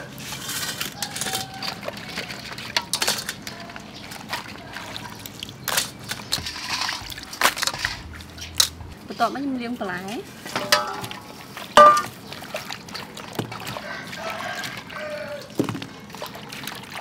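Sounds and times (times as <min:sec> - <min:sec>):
water splashing in metal bowl: 0:00.2 - 0:08.8, 0:10.4 - 0:17.0.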